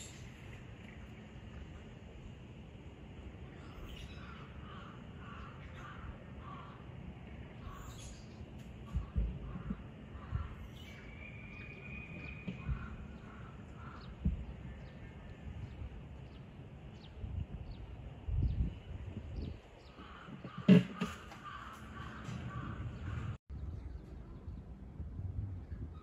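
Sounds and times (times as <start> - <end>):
low background rumble: 0.0 - 20.6
faint high bird chirps: 7.6 - 13.2.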